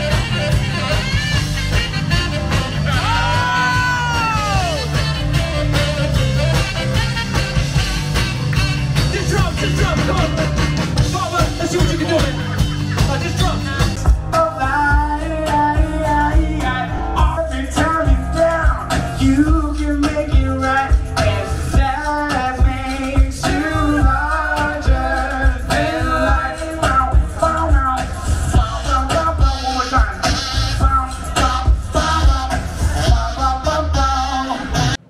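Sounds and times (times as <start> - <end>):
live band music with saxophones: 0.0 - 35.0
person singing: 14.0 - 35.0.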